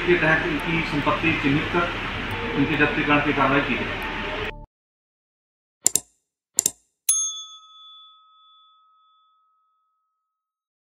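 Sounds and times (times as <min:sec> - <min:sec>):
mouse clicks: 0:05.8 - 0:06.8
bell ding: 0:07.1 - 0:10.2.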